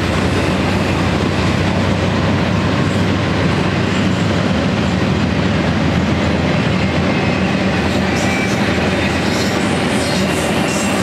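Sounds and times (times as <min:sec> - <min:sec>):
train wheels rumbling on rails: 0:00.0 - 0:11.0
high wheel squeal: 0:07.0 - 0:11.0.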